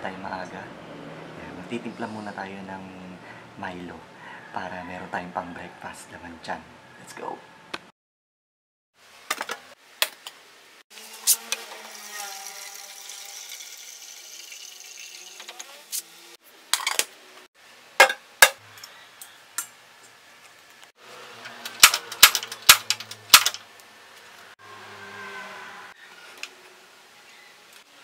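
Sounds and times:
water running into a kettle: 11.8 - 15.9.

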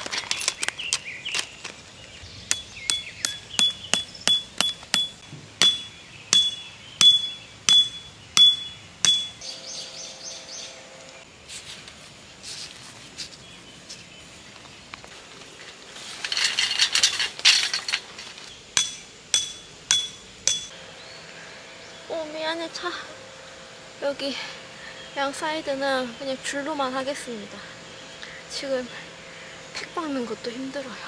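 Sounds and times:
hammer striking metal tent peg: 2.5 - 9.4, 18.8 - 20.8.

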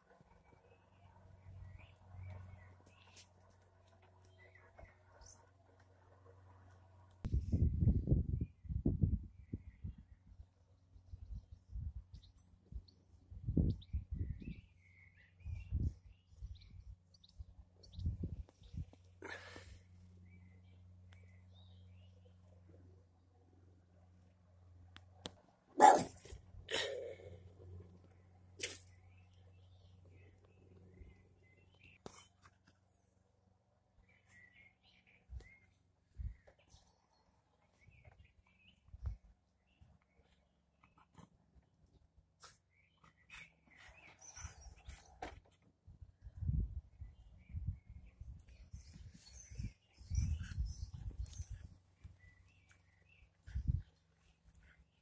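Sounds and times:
small birds chirping: 0.0 - 5.6, 8.3 - 23.0, 25.1 - 33.2, 34.0 - 45.6, 46.5 - 55.0
dog barking: 25.8 - 26.3
dog yapping sharply: 25.8 - 26.9.

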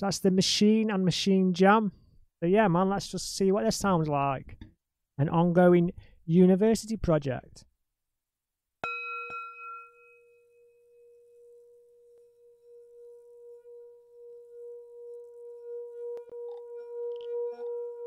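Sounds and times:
singing bowl ringing: 8.8 - 18.0.

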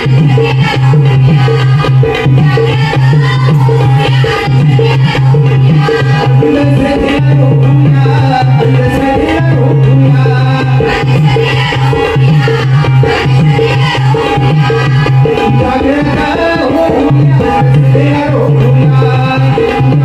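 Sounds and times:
women's chorus singing: 0.0 - 7.2, 10.1 - 19.7
hand drum: 0.0 - 20.0
man singing: 5.8 - 11.1, 15.4 - 20.0.

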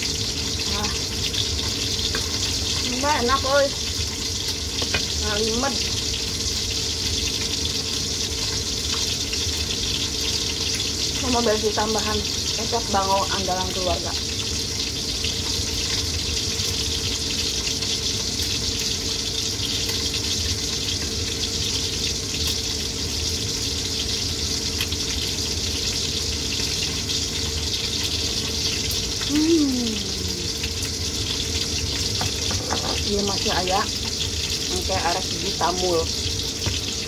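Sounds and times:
person humming: 29.2 - 30.7.

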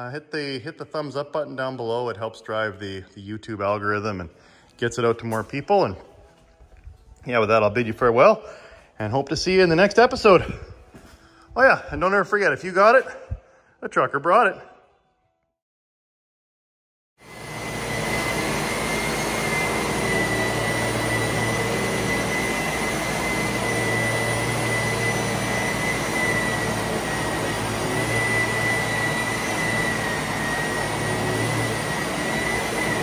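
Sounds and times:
rotary sander hiss and whine: 17.3 - 33.0.

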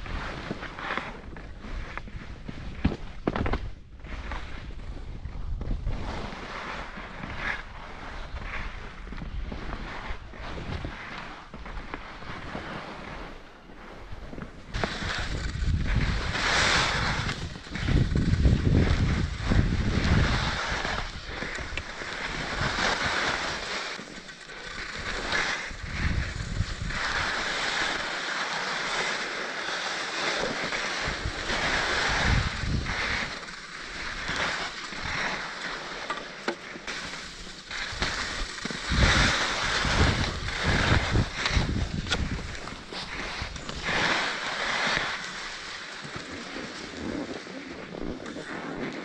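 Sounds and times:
skis scraping over snow: 0.0 - 49.0
wind buffeting microphone: 14.3 - 23.4, 24.9 - 27.6, 31.0 - 33.4, 37.8 - 44.2.

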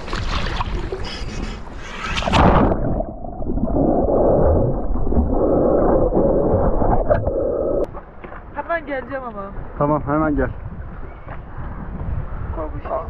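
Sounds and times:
muffled underwater rushing: 0.0 - 8.2.

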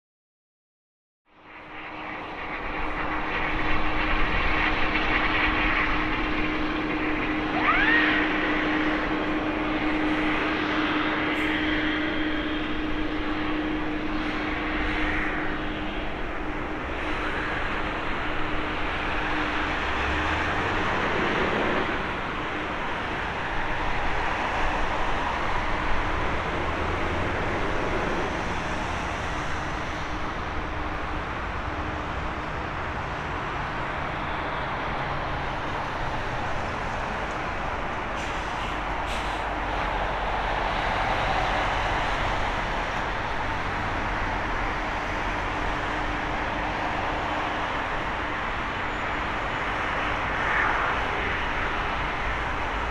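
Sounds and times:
jet engine roar: 1.3 - 52.9
steady hum: 1.6 - 34.9.

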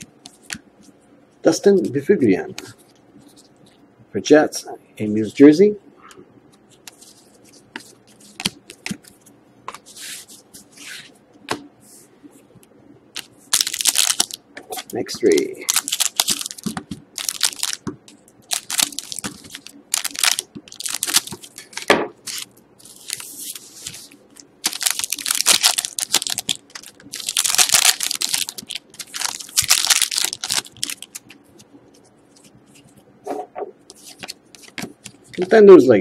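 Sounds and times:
foil wrappers crinkling: 13.2 - 32.5.

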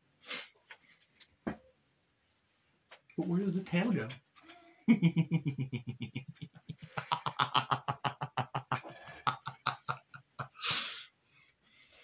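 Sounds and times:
man laughing: 4.9 - 10.6.

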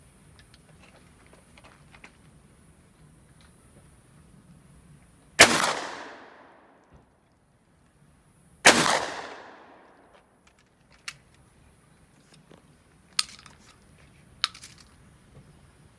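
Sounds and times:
shotgun blast echoing: 5.4 - 6.7, 8.7 - 10.0
metallic clicks of reloading: 13.1 - 13.8, 14.4 - 15.0.

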